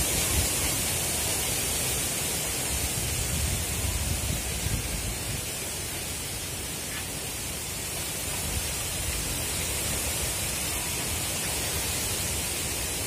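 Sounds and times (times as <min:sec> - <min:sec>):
wind buffeting microphone: 0:02.7 - 0:05.6.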